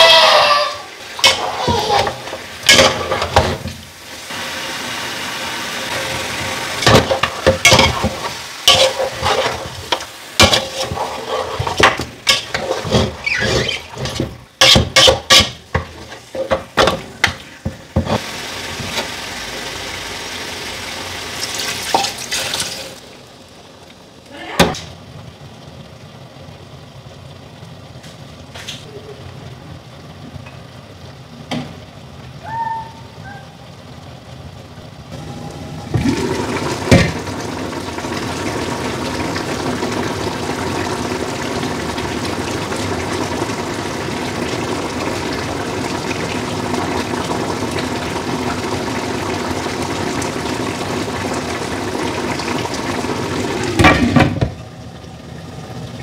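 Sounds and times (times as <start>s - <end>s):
stew bubbling and sizzling: 0.0s - 56.0s
pot lid clanking: 1.2s - 3.6s.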